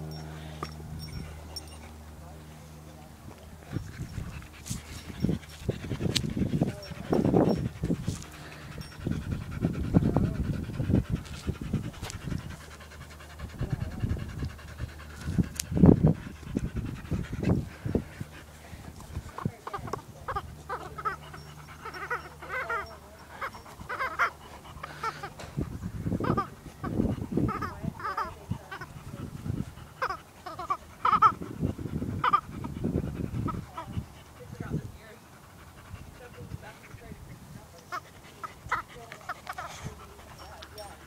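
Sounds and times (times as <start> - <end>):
dogs panting: 0.0 - 41.0
dog whining and yipping: 20.7 - 26.5.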